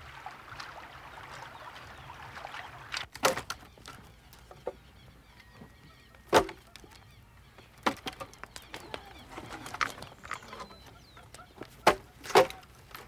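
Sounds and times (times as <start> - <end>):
firewood logs knocking together: 2.9 - 4.8, 6.2 - 7.0, 7.7 - 13.0.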